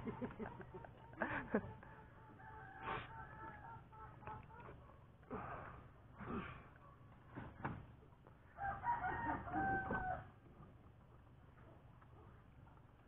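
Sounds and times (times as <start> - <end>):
rooster crowing: 1.5 - 4.0, 8.6 - 10.3.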